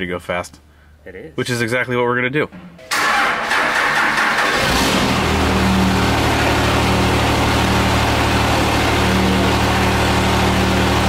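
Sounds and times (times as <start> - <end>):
diesel engine starting and idling: 2.9 - 11.0.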